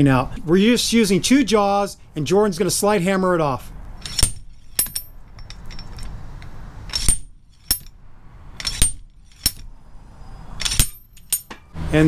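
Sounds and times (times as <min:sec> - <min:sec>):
light metal clinks: 0:04.0 - 0:06.2, 0:10.6 - 0:11.7
slide hammer metallic clanks: 0:04.0 - 0:08.0, 0:08.6 - 0:09.7, 0:10.6 - 0:11.7.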